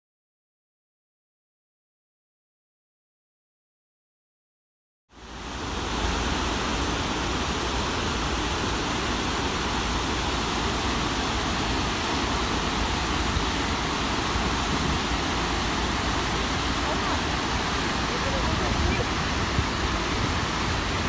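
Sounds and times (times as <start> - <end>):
waterfall roar: 5.1 - 21.0.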